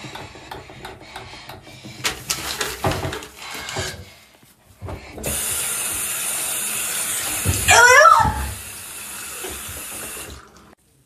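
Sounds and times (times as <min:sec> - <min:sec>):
water running into a basin: 0:04.9 - 0:10.8.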